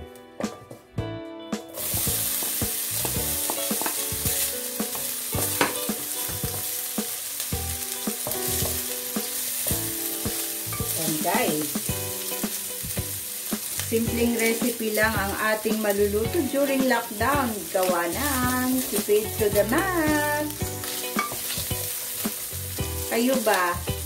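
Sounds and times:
food sizzling in hot oil: 1.7 - 24.0
wooden spatula knocking on pan: 2.1 - 4.2, 4.8 - 7.2, 8.1 - 9.3.

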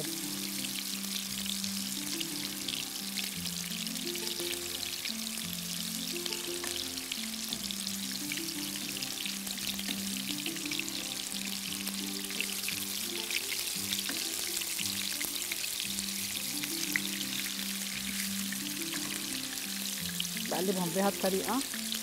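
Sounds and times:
background music: 0.0 - 22.0
meat sizzling in oil: 0.0 - 22.0.

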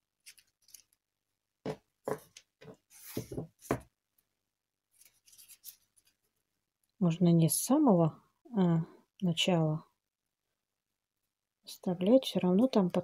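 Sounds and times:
tape and stems rustling: 0.0 - 1.0, 4.9 - 6.3.

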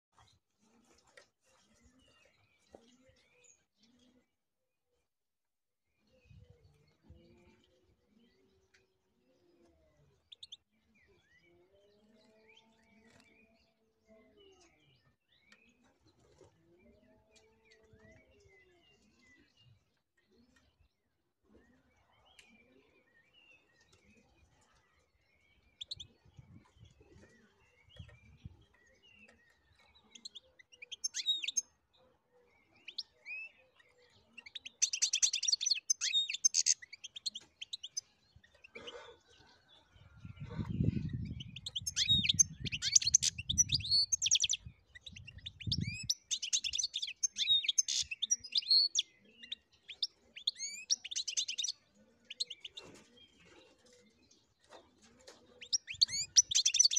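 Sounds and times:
goldfinch singing: 28.8 - 31.6, 34.4 - 38.8, 40.8 - 53.4, 55.5 - 56.9.

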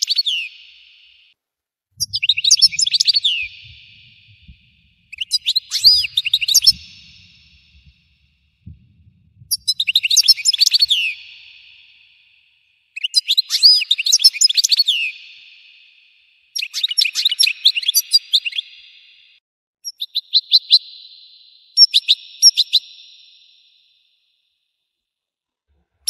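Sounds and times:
goldfinch twittering song: 2.0 - 8.3, 9.4 - 12.0.

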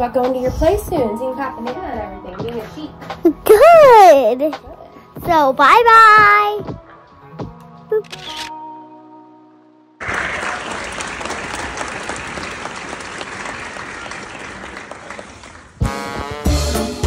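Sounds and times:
music: 0.0 - 12.5, 15.7 - 17.0
audience applauding: 10.0 - 15.9.

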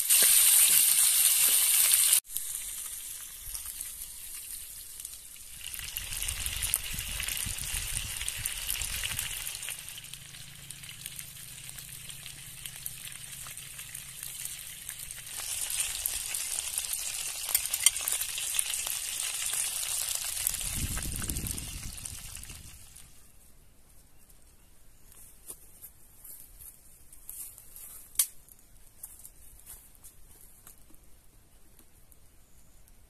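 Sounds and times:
chicken wings sizzling in oil: 0.0 - 23.2.

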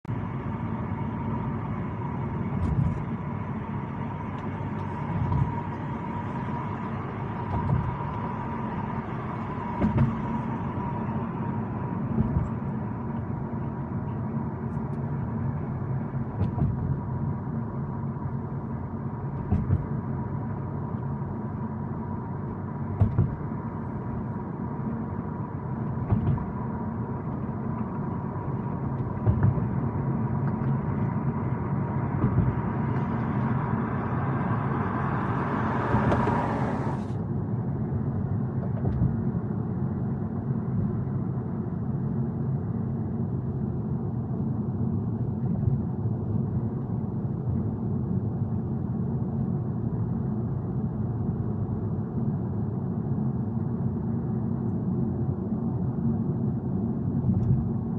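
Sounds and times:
car driving rumble: 0.0 - 52.8
short thumps: 9.6 - 10.5, 19.4 - 20.0, 22.9 - 23.5, 29.0 - 29.8, 32.1 - 33.3.

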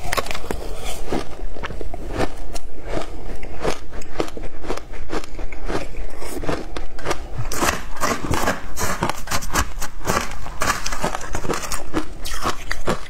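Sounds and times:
chewing and crunching ice: 0.0 - 13.0
metal spoon scraping ice: 7.5 - 13.0.

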